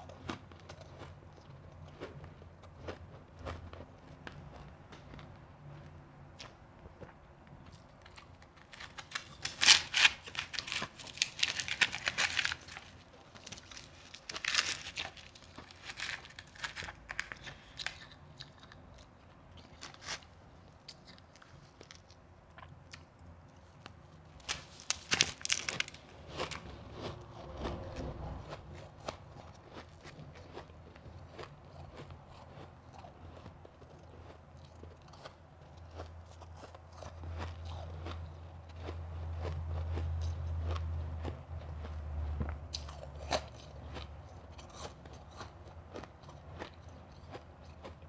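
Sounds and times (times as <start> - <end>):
shaved ice crunching: 8.7 - 18.0, 24.4 - 27.2.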